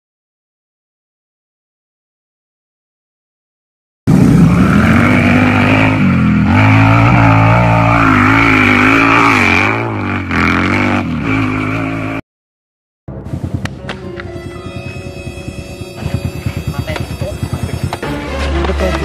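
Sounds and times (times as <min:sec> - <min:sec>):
small motorcycle engine running: 0:14.5 - 0:19.0.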